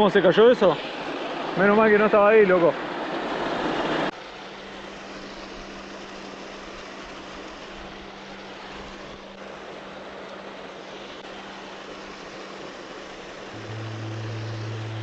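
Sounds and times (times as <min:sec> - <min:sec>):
low steady hum: 0:13.5 - 0:15.0
steady rushing noise: 0:13.6 - 0:15.0.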